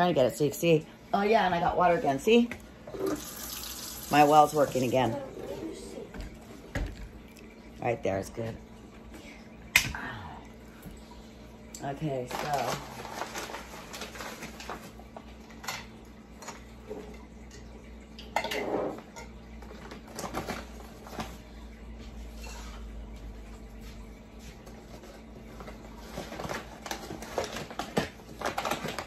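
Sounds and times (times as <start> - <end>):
dishes and utensils clinking: 18.2 - 19.4
kitchenware clatter: 18.2 - 21.2.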